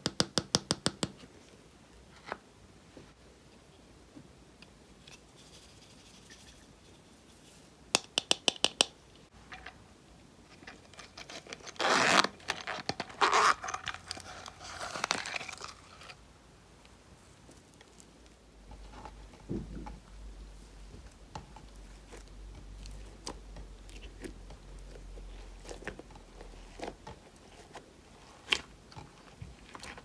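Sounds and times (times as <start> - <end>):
zipper rasping: 11.7 - 15.0.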